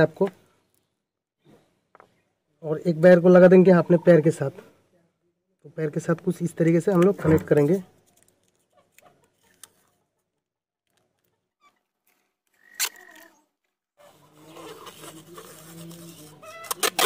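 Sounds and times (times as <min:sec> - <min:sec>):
tape unrolling: 0:11.2 - 0:13.4, 0:14.0 - 0:17.0
packing tape ripping: 0:12.1 - 0:13.4, 0:14.5 - 0:17.0.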